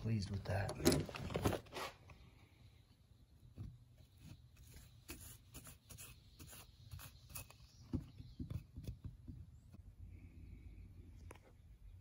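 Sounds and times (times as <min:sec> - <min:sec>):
paintbrush scratchy strokes: 0:04.0 - 0:07.9.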